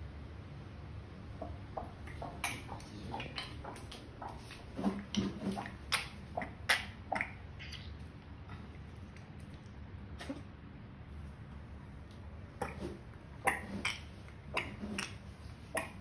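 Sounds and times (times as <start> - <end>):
cat retching: 12.6 - 16.0.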